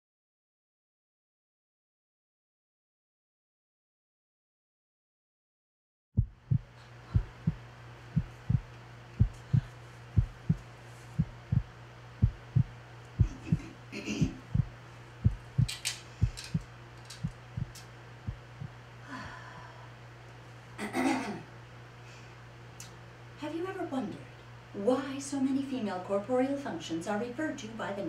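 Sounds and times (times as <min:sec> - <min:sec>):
heartbeat through stethoscope: 0:06.2 - 0:07.6, 0:08.2 - 0:18.8
steady low hum: 0:06.2 - 0:26.2.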